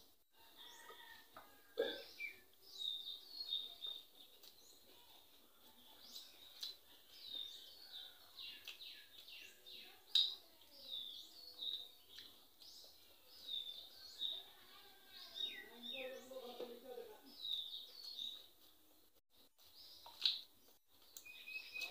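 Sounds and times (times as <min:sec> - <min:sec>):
small birds chirping: 0:00.0 - 0:21.9
person chewing: 0:03.8 - 0:10.4, 0:11.0 - 0:14.0, 0:17.5 - 0:21.9.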